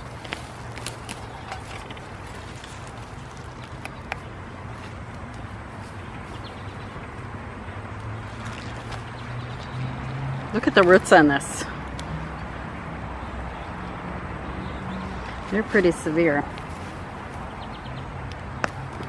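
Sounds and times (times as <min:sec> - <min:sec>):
stems snapping: 0:00.0 - 0:05.5
rustling stems and leaves: 0:00.0 - 0:07.3, 0:16.5 - 0:17.6.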